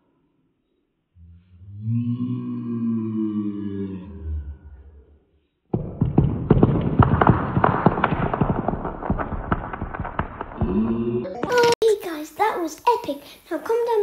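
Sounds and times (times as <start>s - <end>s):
slowed clatter of dice: 5.8s - 10.8s.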